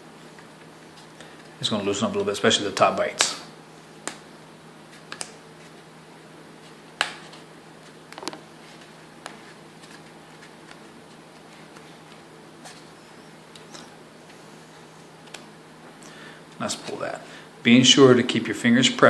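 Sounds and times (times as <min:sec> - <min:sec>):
faint hum: 0:00.0 - 0:19.0
hands clicking and tapping cardboard: 0:04.9 - 0:05.4, 0:09.2 - 0:12.2.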